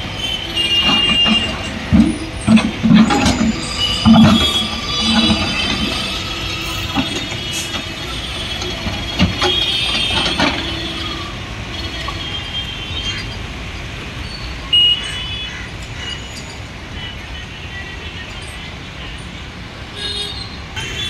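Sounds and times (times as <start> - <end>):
hydraulic excavator running: 0.0 - 12.5.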